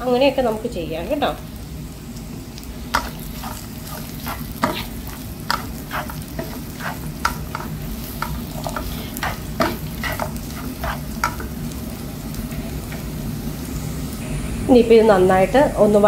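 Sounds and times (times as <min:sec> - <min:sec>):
food sizzling in oil: 0:00.0 - 0:14.2
spatula scraping and tapping pan: 0:03.0 - 0:11.6.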